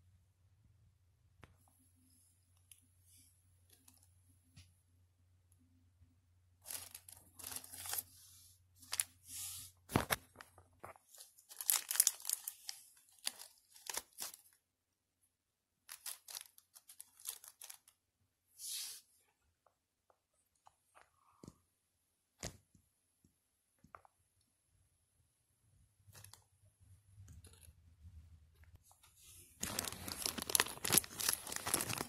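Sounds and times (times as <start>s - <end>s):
plastic bag crinkling and tearing: 6.6s - 8.1s, 11.2s - 14.6s, 15.9s - 18.0s, 29.6s - 32.0s.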